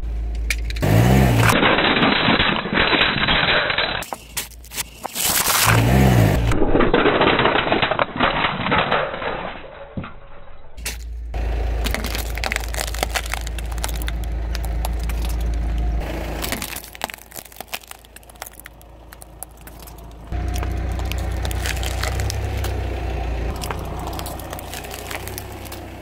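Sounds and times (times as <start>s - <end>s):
low car rumble: 0.0s - 4.1s, 10.1s - 26.0s
glass screens cracking and crunching: 0.8s - 11.1s, 11.8s - 26.0s.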